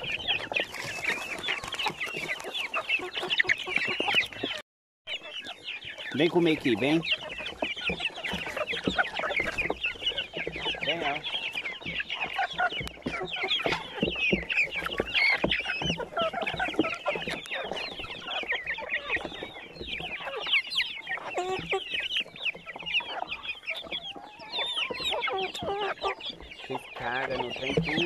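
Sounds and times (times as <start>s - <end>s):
birds pecking at feed: 0.0s - 28.0s
chicks chirping and clucking: 0.0s - 28.0s.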